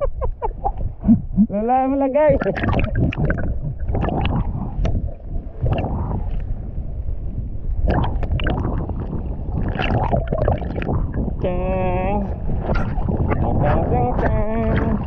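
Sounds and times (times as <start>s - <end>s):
muffled underwater rumble: 0.0s - 15.0s.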